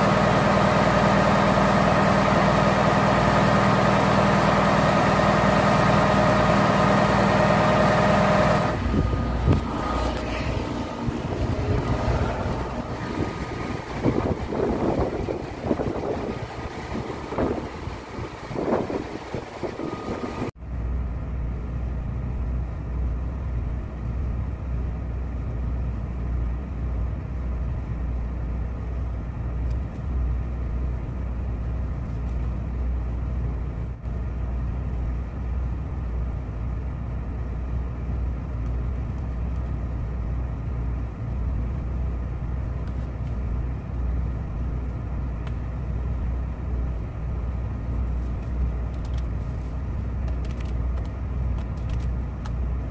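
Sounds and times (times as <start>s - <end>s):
low drone of engine machinery: 0.0s - 52.9s
wind buffeting microphone: 8.8s - 20.5s.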